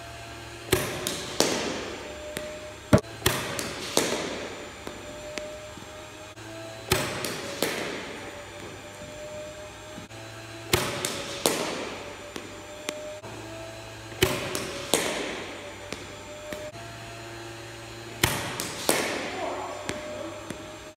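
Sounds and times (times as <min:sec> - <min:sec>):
low machine hum: 0:00.0 - 0:20.9
cricket ball cracking on bat: 0:00.7 - 0:05.6, 0:06.9 - 0:08.1, 0:10.7 - 0:13.1, 0:14.2 - 0:16.7, 0:18.2 - 0:20.7.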